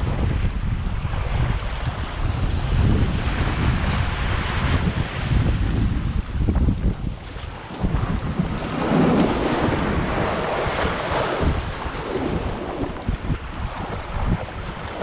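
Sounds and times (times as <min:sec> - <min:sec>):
sea surf breaking on rocks: 0:00.0 - 0:15.0
wind buffeting microphone: 0:00.0 - 0:15.0.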